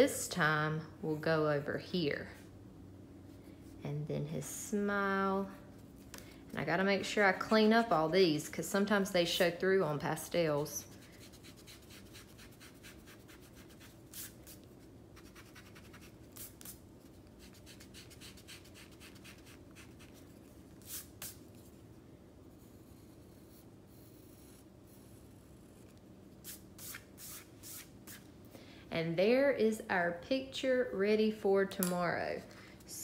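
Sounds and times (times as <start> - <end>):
pencil scratching on paper: 10.8 - 14.6, 17.4 - 20.2, 22.5 - 26.0.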